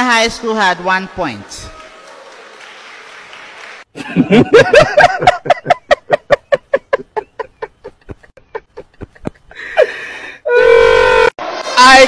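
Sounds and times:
man laughing: 0:04.0 - 0:10.0.

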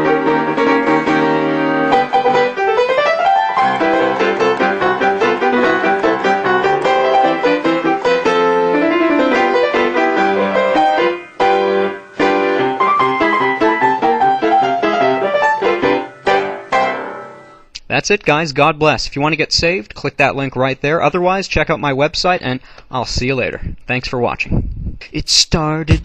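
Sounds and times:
fast piano piece: 0:00.0 - 0:17.7.

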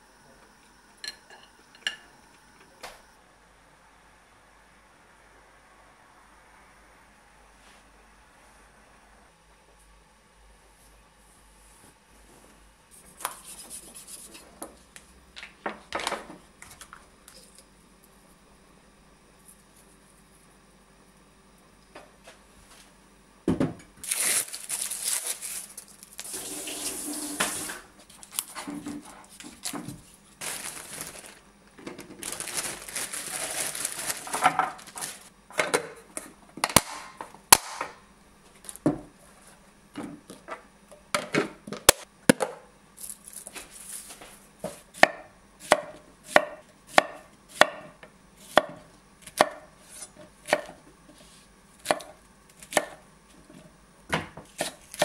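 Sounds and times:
rustling and handling noise: 0:24.0 - 0:35.4, 0:43.0 - 0:44.9.

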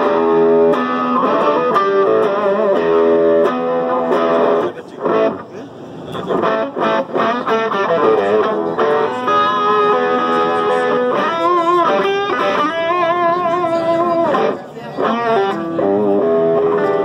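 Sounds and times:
electric guitar through amplifier: 0:00.0 - 0:17.0.

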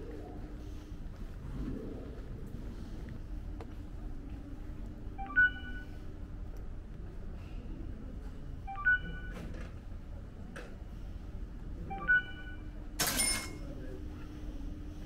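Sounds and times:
touchscreen button-press chime: 0:05.2 - 0:05.8, 0:08.7 - 0:09.4, 0:11.9 - 0:12.6.

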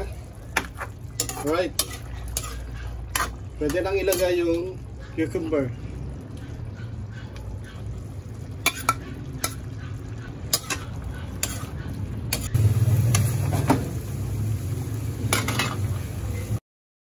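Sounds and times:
utensil clanking against wok: 0:00.5 - 0:04.6, 0:08.4 - 0:14.1, 0:15.2 - 0:16.6
low steady rumble: 0:05.7 - 0:16.6.

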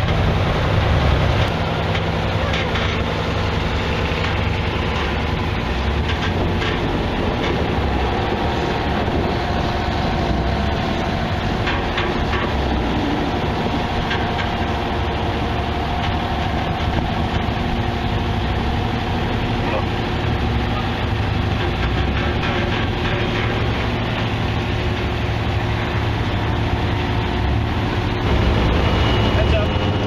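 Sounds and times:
tractor diesel engine running: 0:00.0 - 0:30.0
plow frames clattering on pavement: 0:01.8 - 0:08.4.

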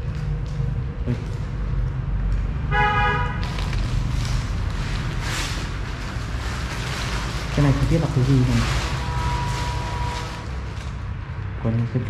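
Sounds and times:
steady low rumble: 0:00.0 - 0:12.0
vehicle horn toot: 0:02.7 - 0:03.4, 0:08.4 - 0:10.9.

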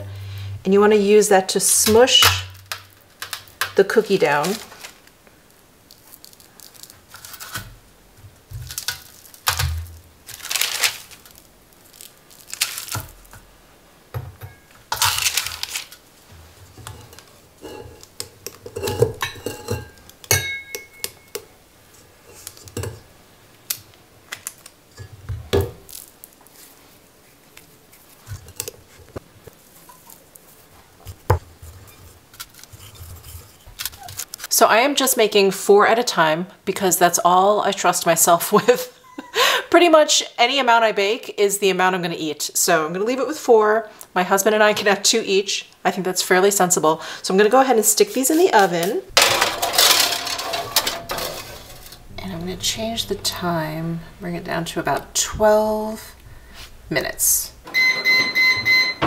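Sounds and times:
parchment paper rustling: 0:04.2 - 0:05.2, 0:10.2 - 0:13.3, 0:15.0 - 0:16.0.

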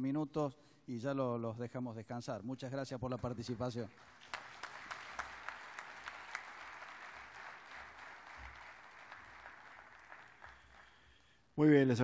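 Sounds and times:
audience applauding: 0:03.9 - 0:11.4.

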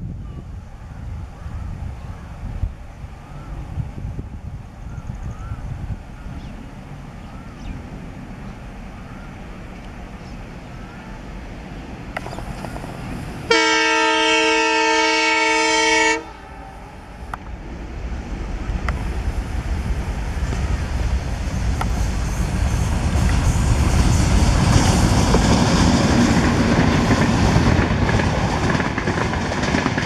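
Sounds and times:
diesel locomotive engine rumbling: 0:00.0 - 0:30.0
locomotive horn blast: 0:13.5 - 0:16.6.

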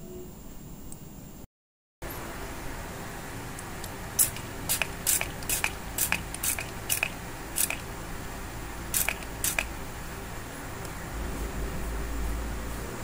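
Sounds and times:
aerosol spray hissing bursts: 0:04.0 - 0:08.0, 0:08.9 - 0:09.9.

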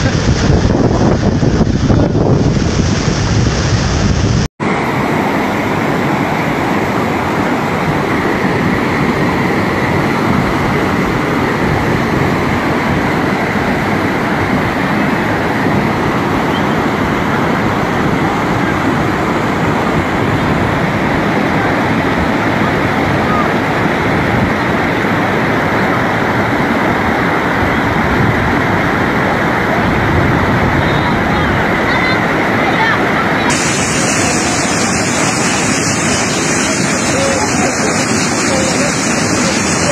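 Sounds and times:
wind buffeting microphone: 0:00.0 - 0:04.5, 0:27.4 - 0:39.9
floodwater rushing: 0:00.0 - 0:39.9.

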